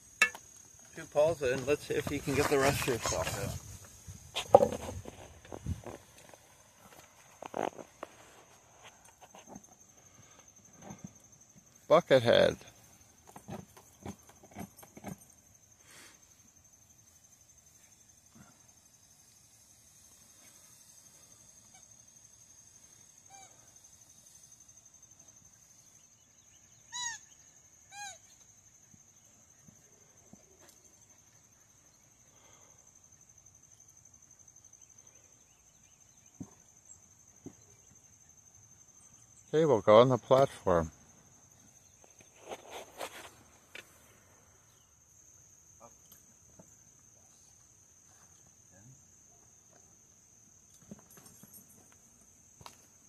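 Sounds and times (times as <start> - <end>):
cricket trill: 0.0 - 53.0
squeaky dog toy: 26.9 - 27.2, 27.9 - 28.2.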